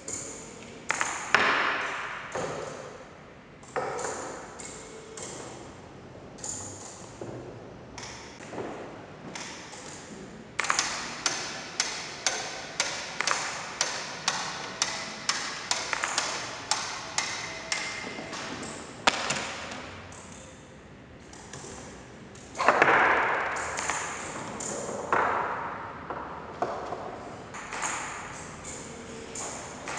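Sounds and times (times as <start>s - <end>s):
automaton mechanism tapping: 10.6s - 19.4s.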